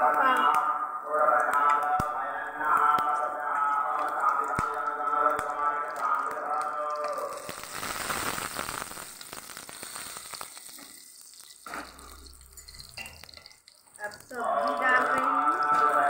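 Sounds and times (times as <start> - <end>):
hot oil sizzling: 0.0 - 16.0.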